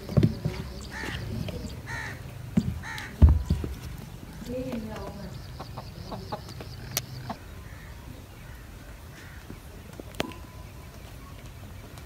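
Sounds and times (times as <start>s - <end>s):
hen clucking: 4.9s - 7.9s.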